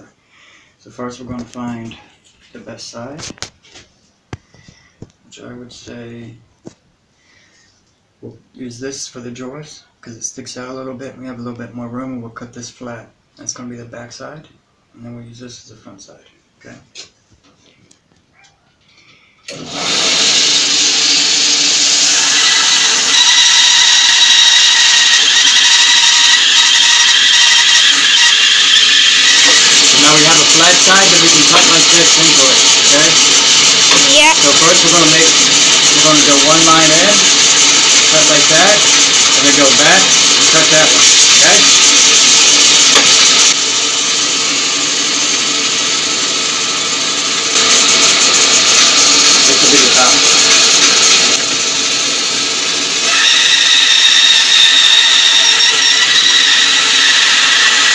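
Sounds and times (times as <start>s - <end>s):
bandsaw cutting log: 19.5s - 57.9s
bandsaw running: 19.5s - 57.9s.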